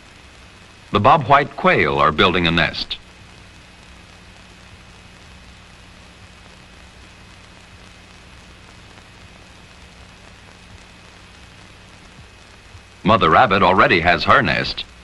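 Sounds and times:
film soundtrack hiss: 0.0s - 15.0s.

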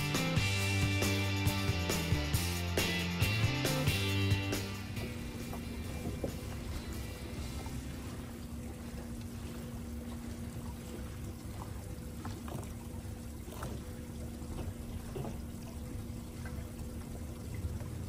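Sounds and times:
low hum and rumble: 0.0s - 18.0s
water lapping against boat hull: 3.3s - 18.0s
small water splashes: 5.1s - 18.0s.

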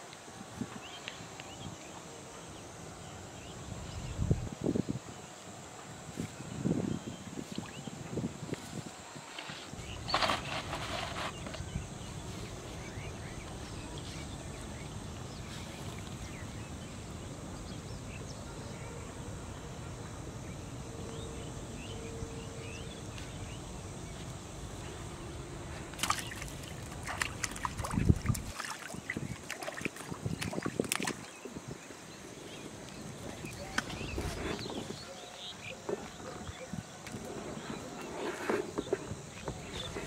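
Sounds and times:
low background noise: 0.0s - 40.0s
fish splashing in water: 25.9s - 31.3s.

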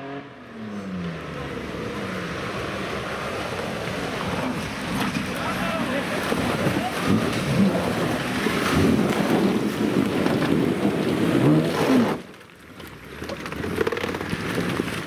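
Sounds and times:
tyres churning through mud: 1.2s - 15.0s
off-road vehicle engine revving: 4.3s - 12.3s.

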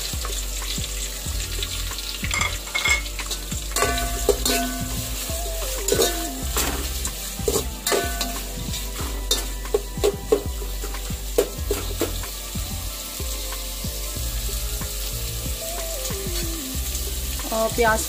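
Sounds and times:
onions sizzling in oil: 0.0s - 18.0s
spoon scraping a metal pot: 2.0s - 12.3s.

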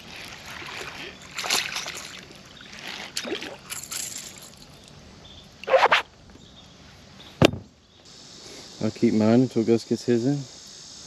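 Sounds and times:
water splashes and drips: 0.0s - 5.0s.

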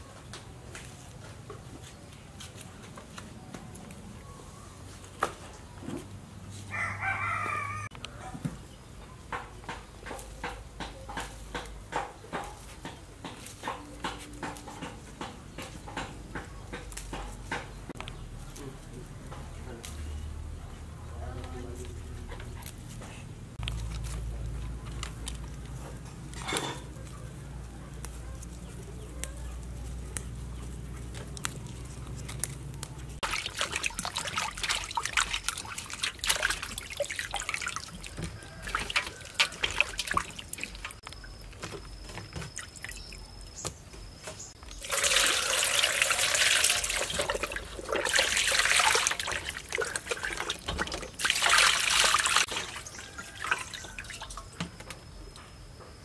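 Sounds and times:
water splashing and sloshing: 32.2s - 43.6s, 44.4s - 54.8s.

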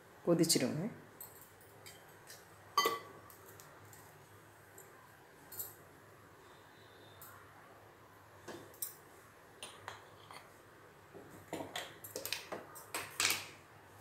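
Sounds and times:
faint steady hum: 0.0s - 14.0s
metal kitchenware clinking: 2.8s - 3.1s.

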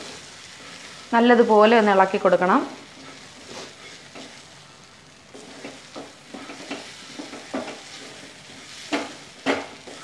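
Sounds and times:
faint sizzle: 0.0s - 10.0s
wooden spatula scraping frying pan: 2.8s - 4.5s, 5.3s - 10.0s.

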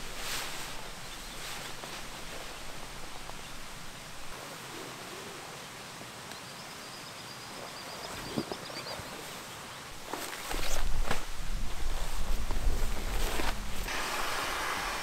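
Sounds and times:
rustling: 0.0s - 5.3s, 8.1s - 14.0s
outdoor background noise: 0.0s - 15.0s
high warbling bird song: 6.3s - 10.0s.

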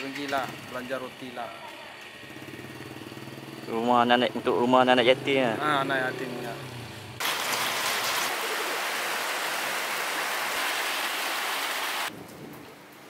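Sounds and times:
heavy rain falling: 7.2s - 12.6s.

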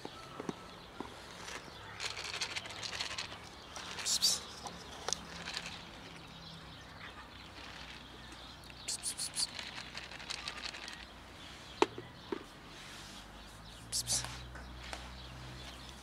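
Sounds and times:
plastic container rustling: 1.3s - 6.4s, 9.4s - 11.1s.

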